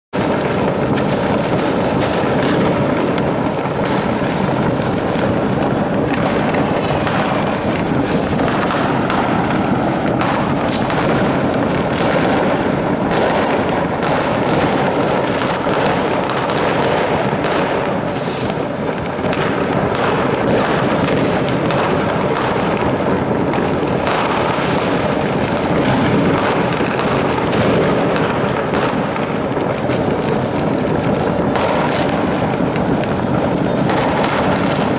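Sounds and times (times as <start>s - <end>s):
fireworks bangs and crackles: 0.1s - 34.9s
short falling whistles: 0.2s - 9.1s.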